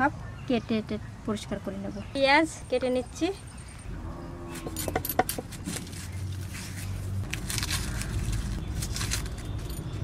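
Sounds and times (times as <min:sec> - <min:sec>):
onion skin crackling: 0:05.4 - 0:09.7.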